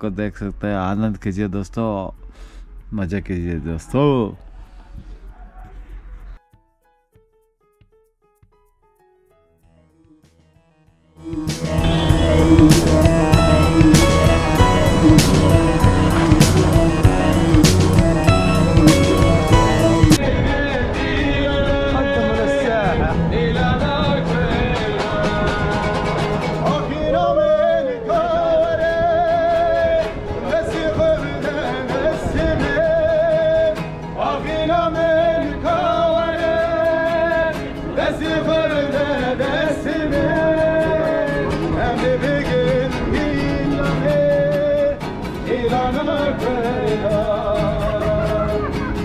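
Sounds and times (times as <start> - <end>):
strummed acoustic guitars: 11.2 - 49.0
men singing with vibrato: 11.5 - 49.0.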